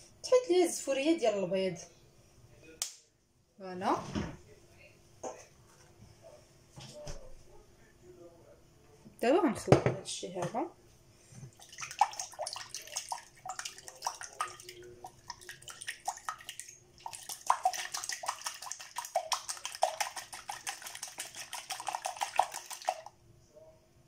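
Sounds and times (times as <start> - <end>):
whisk clicking against bowl: 12.0 - 23.1.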